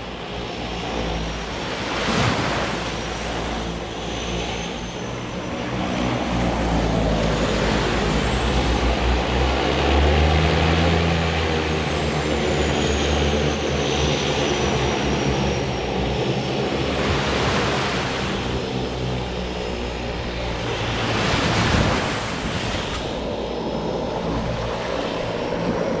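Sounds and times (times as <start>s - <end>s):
small waves washing onto sand: 0.0s - 4.6s, 16.7s - 19.3s, 20.3s - 23.4s
high whine: 0.0s - 26.0s
propeller plane engine droning: 0.0s - 26.0s.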